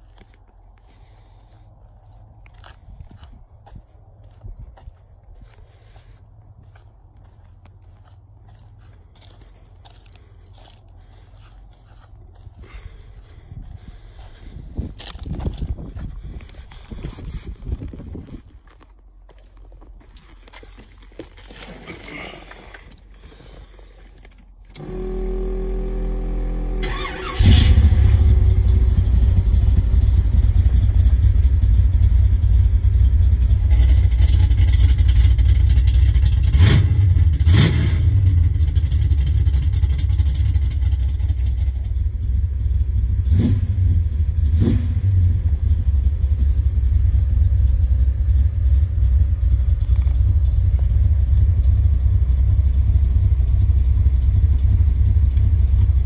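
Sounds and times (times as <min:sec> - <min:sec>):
car engine idling: 0:19.2 - 0:56.0
starter motor cranking: 0:26.8 - 0:27.9.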